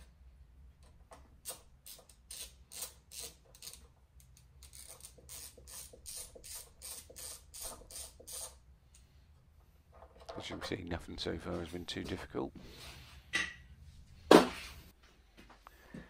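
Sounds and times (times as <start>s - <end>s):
socket ratchet clicking: 1.4s - 8.6s.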